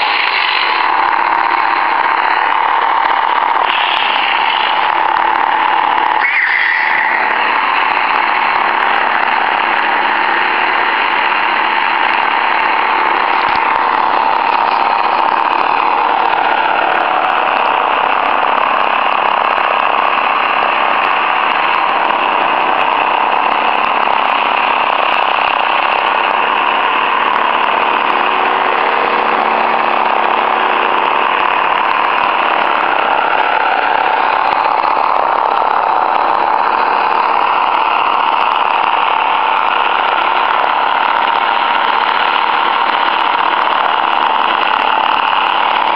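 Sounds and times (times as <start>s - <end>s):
lightsaber electronic hum: 6.2s - 7.7s.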